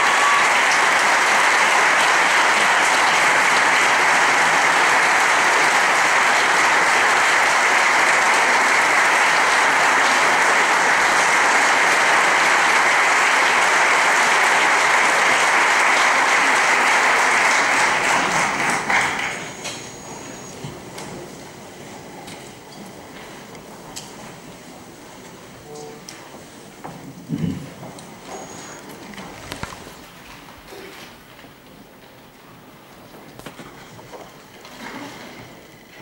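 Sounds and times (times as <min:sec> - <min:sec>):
audience applauding: 0:00.0 - 0:21.4.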